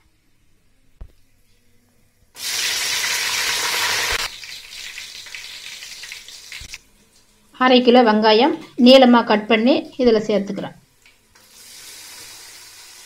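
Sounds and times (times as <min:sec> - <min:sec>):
chillies sizzling in hot oil: 0:02.4 - 0:06.8, 0:11.3 - 0:13.0.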